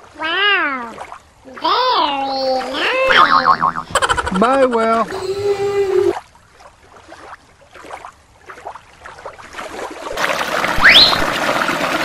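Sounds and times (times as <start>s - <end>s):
creek water over rocks: 4.5s - 12.0s.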